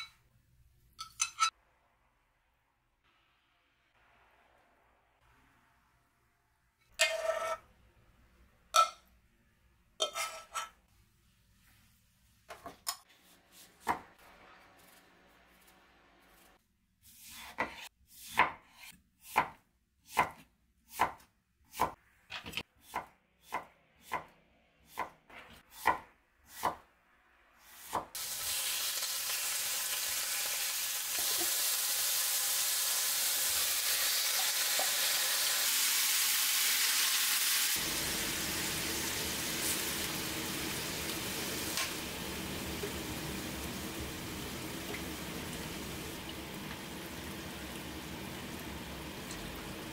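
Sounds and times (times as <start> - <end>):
knife chopping on cutting board: 17.2 - 24.3
meat sizzling in a frying pan: 28.2 - 49.9.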